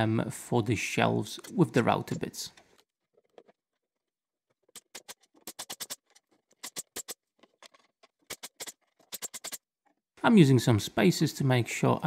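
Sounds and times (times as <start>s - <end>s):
brad nailer clicks: 4.8s - 7.2s, 8.3s - 9.6s.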